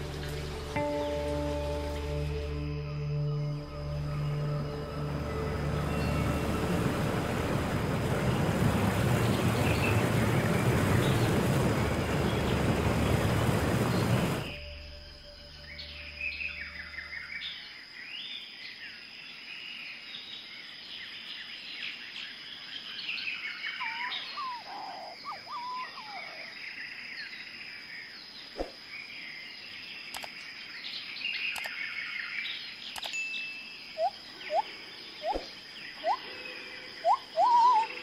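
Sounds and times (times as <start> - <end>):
birds chirping and calling: 23.3 - 26.7, 33.9 - 38.0.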